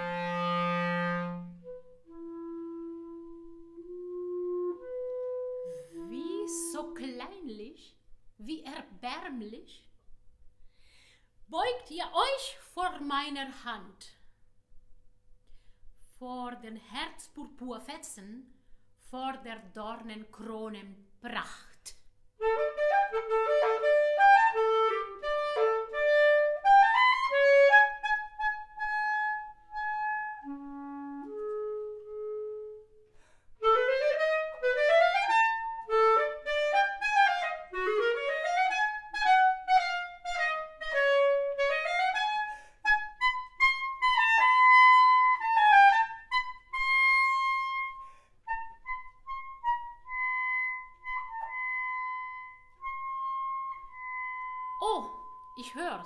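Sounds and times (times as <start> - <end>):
bass clarinet melody: 0.0 - 7.4, 22.4 - 56.0.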